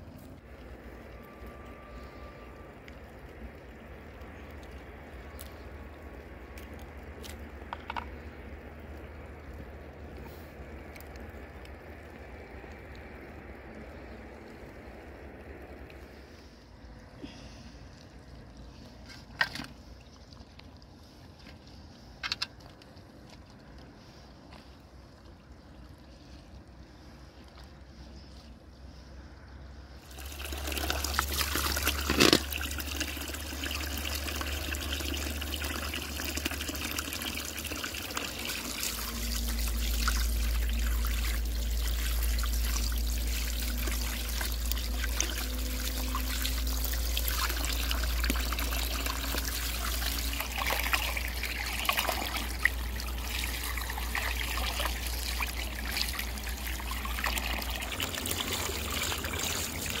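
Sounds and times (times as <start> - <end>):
water pouring into basin: 0.0 - 16.6, 30.0 - 60.0
steady low hum: 0.0 - 20.1, 23.8 - 60.0
hands rinsing fish in water: 30.0 - 60.0.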